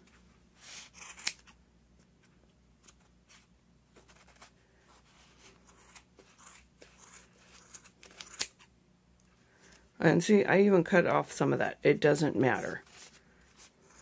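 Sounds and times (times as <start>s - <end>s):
scissors snipping yarn: 5.7s - 8.6s.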